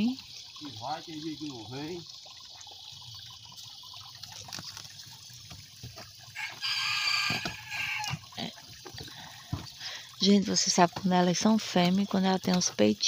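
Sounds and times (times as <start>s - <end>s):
water trickling: 0.0s - 13.0s
rooster crowing: 6.4s - 8.2s.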